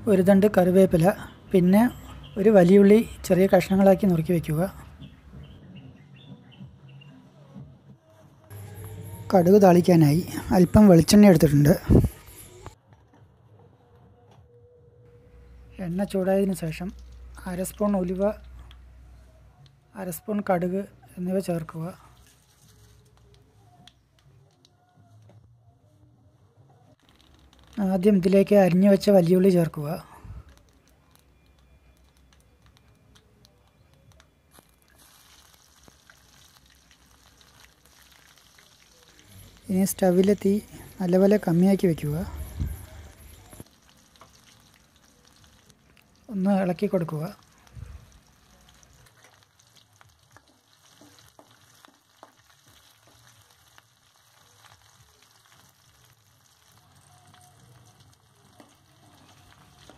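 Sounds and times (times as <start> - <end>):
seeds popping in hot oil: 16.0 - 18.8, 27.0 - 59.9
onion sizzling in oil: 30.6 - 59.9.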